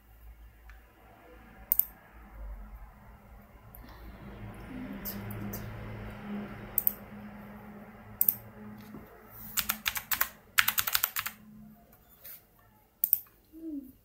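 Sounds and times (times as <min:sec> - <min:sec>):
typing on computer keyboard: 0:09.6 - 0:11.4.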